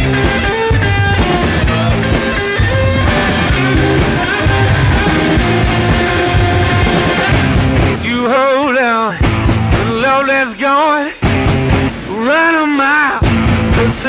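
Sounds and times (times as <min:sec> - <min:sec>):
held wavering guitar note: 0:00.0 - 0:08.2
rock music: 0:00.0 - 0:14.0.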